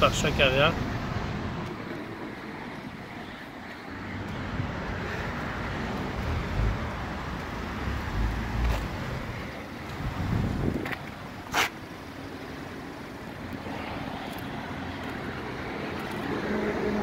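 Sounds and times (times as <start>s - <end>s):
traffic noise: 0.0s - 17.0s
wind buffeting microphone: 8.1s - 11.2s.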